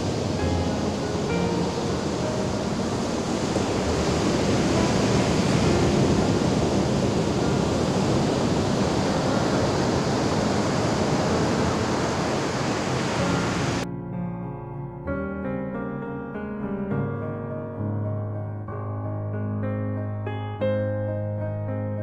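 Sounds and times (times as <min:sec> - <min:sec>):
ocean waves breaking on beach: 0:00.0 - 0:13.8.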